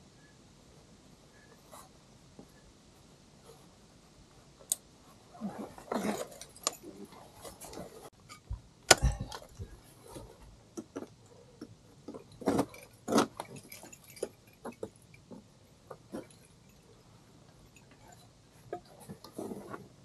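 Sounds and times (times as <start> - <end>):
climbing hardware jangling: 12.1 - 16.9.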